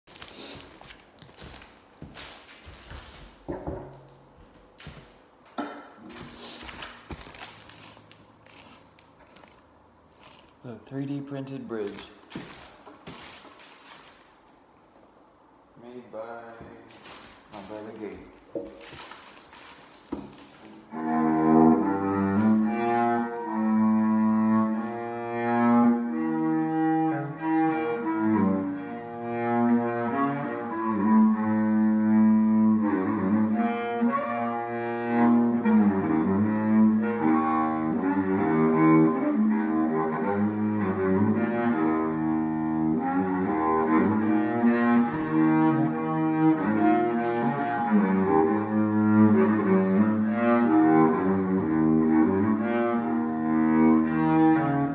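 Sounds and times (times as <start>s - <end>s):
bowed cello melody: 20.2s - 54.9s.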